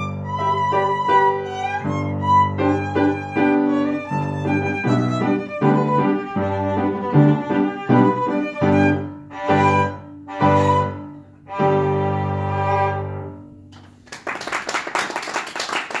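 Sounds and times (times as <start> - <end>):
violin and piano playing: 0.0 - 13.6
applause: 13.8 - 16.0.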